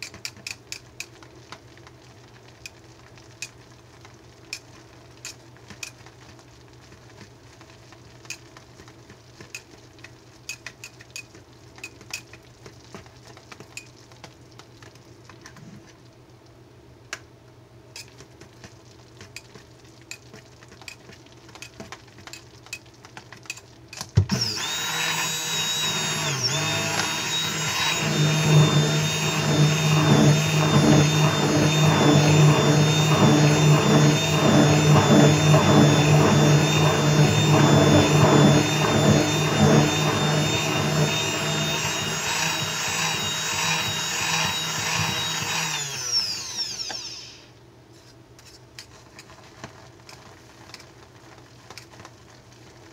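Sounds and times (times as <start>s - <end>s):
whisk clicking in batter: 8.2s - 14.7s, 18.0s - 23.7s
stick blender running: 24.3s - 47.5s.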